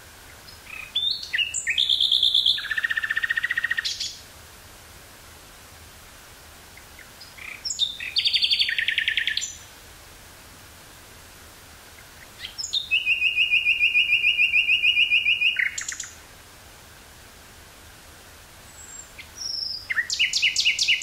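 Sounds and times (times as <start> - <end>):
nightingale singing: 0.2 - 4.3, 6.7 - 9.7, 11.9 - 16.2, 18.6 - 21.0.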